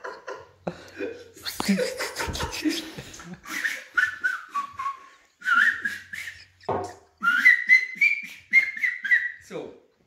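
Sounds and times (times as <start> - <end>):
person whistling: 3.5 - 9.4
knock: 6.7 - 7.0.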